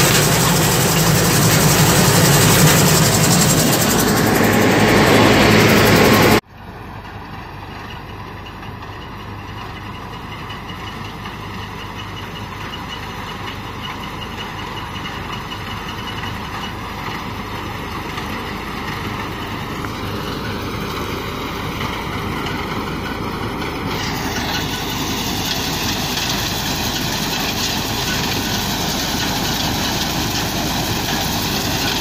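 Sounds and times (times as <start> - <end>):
machine engine droning: 0.0 - 6.4, 16.2 - 32.0.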